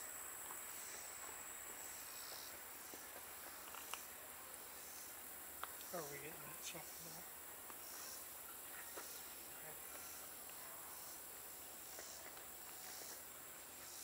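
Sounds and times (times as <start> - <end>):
insect chorus trilling: 0.0 - 14.0.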